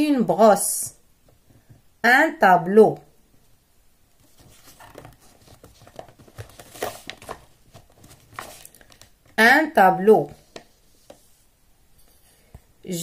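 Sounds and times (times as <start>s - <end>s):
faint handling rustles and clicks: 4.1s - 9.4s, 10.3s - 12.7s.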